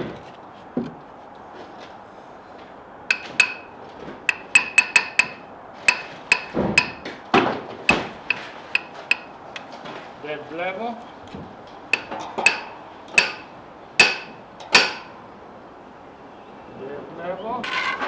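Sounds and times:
hammer tapping steel plate: 3.1s - 7.2s, 7.9s - 9.4s, 12.0s - 15.1s.

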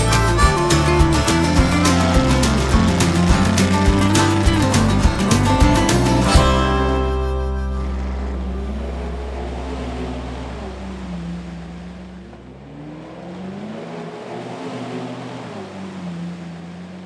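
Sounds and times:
background music chord: 0.0s - 11.2s
truck engine revving: 0.0s - 17.0s.

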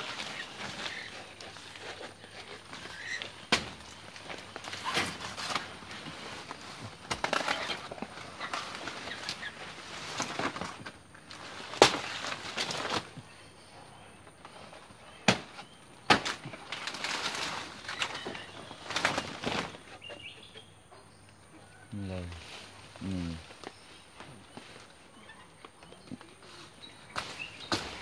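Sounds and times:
dry leaves rustling and tearing: 0.0s - 13.2s, 15.4s - 20.0s, 26.3s - 28.0s.

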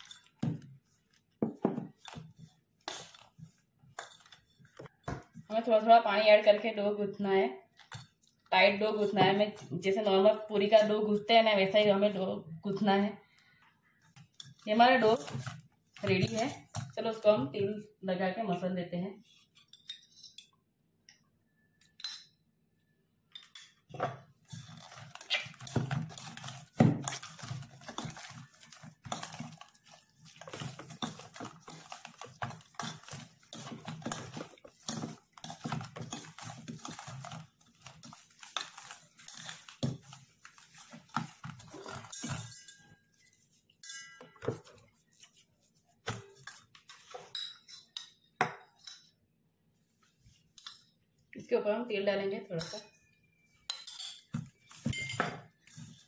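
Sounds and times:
knocks and scrapes in metal bowl: 0.0s - 5.6s, 14.2s - 17.8s, 23.4s - 49.1s.

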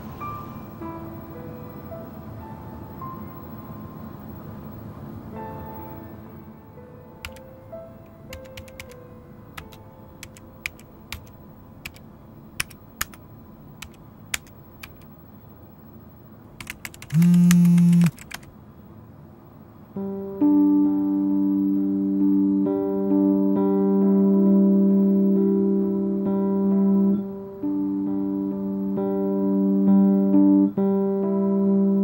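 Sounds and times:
typing on computer keyboard: 7.2s - 7.4s, 8.3s - 9.0s, 9.6s - 12.0s, 12.6s - 13.2s, 13.8s - 15.1s, 16.6s - 18.5s
phone vibration buzz: 17.1s - 18.2s
soft sustained music notes: 19.9s - 32.0s.

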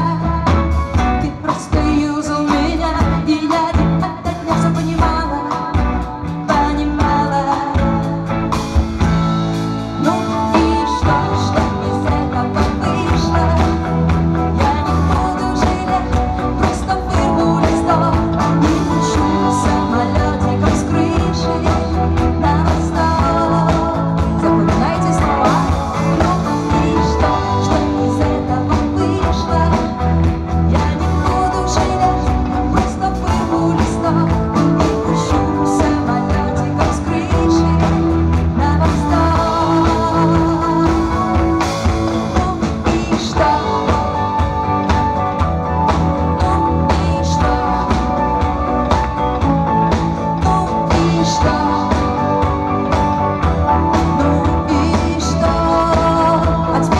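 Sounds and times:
bass guitar: 0.0s - 56.9s
drum kit: 0.0s - 56.9s
electric guitar: 0.0s - 56.9s.

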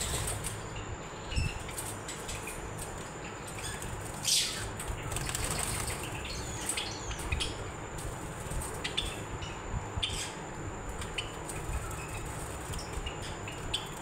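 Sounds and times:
birds fluttering wings: 0.0s - 0.6s, 1.6s - 7.4s, 8.0s - 9.2s, 10.8s - 14.0s.

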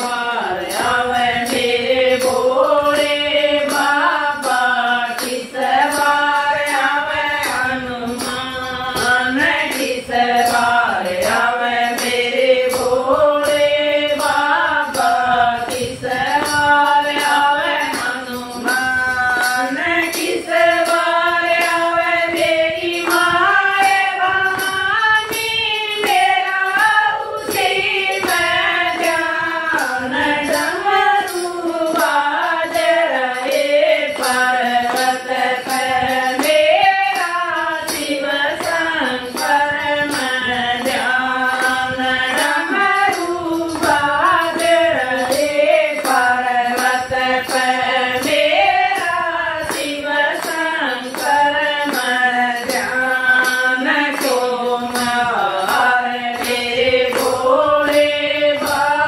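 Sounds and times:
handheld clapper beat: 0.0s - 59.0s
women singing in unison: 0.0s - 59.0s
hand claps: 37.9s - 59.0s.

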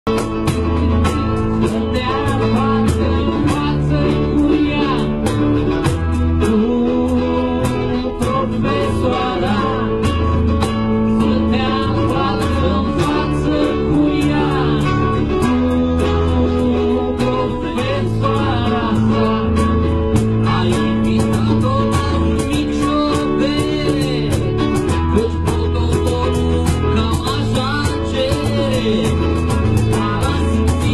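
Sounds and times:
acoustic guitar strumming: 0.1s - 30.9s
group singing: 0.1s - 30.9s
steady percussion beat: 0.1s - 30.9s.

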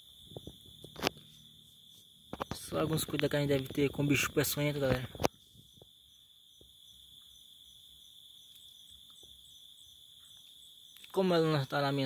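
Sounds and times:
insects trilling: 0.0s - 12.0s.

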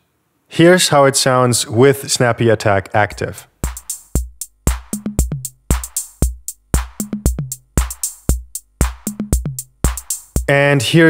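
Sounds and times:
drum machine loop: 3.1s - 10.7s
crisp high percussion hits: 3.6s - 10.5s
low kick drum: 3.6s - 10.5s.

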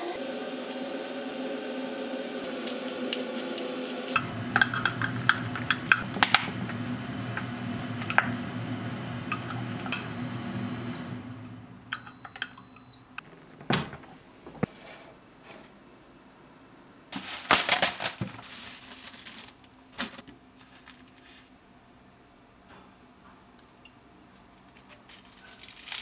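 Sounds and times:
appliance hum: 0.0s - 15.1s
long high beeps: 9.9s - 11.1s.

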